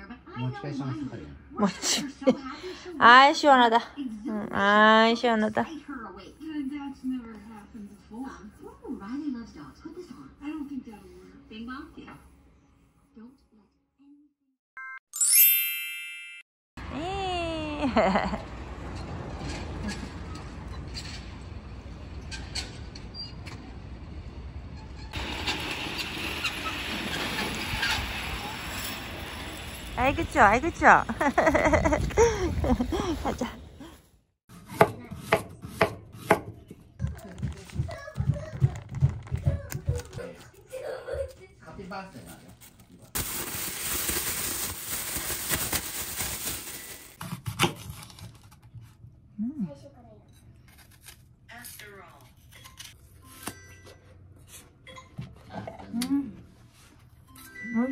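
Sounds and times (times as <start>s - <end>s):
city traffic rumble: 16.8s - 34.2s
metal roller slide rattling hiss: 25.1s - 29.9s
plastic bag crinkling: 42.6s - 47.2s.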